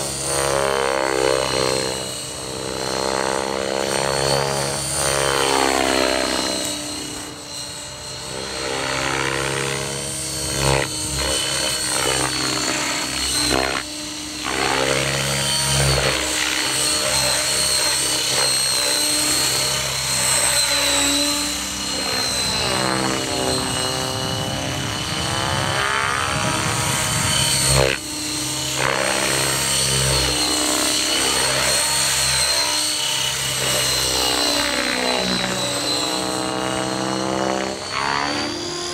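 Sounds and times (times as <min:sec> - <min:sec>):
rc helicopter rotor and motor whine: 0:00.0 - 0:38.9.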